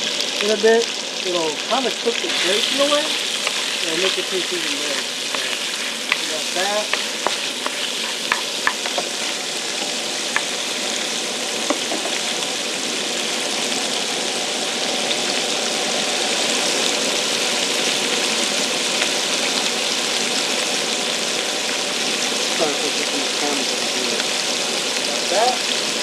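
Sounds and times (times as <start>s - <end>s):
fish sizzling in hot oil: 0.0s - 26.0s
wooden utensil tapping pan: 3.4s - 10.6s, 11.7s - 12.3s.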